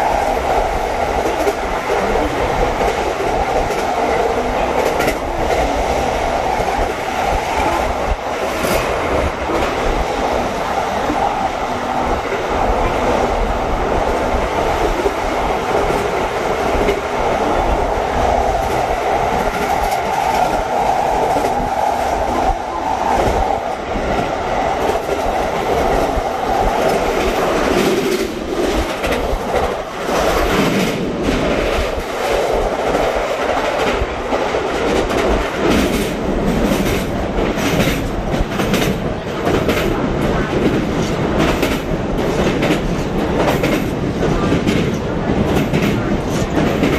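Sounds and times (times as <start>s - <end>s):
train wheels on rails: 0.0s - 46.9s.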